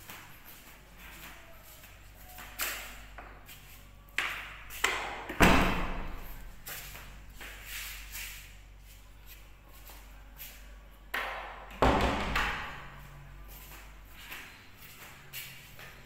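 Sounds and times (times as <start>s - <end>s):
knocks and taps in a room: 4.1s - 5.4s, 11.1s - 12.9s.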